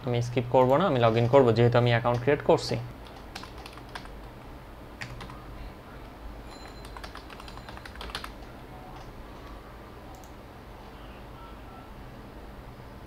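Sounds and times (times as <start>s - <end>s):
computer keyboard typing: 3.0s - 4.3s, 5.0s - 5.4s, 6.5s - 10.4s.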